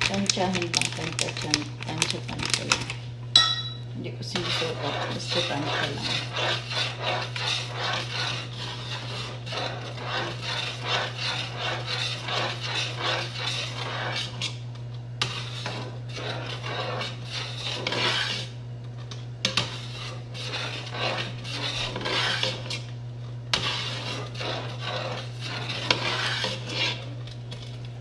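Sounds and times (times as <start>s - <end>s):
spoon scraping metal pot: 3.4s - 14.6s, 15.2s - 22.9s, 23.5s - 27.8s.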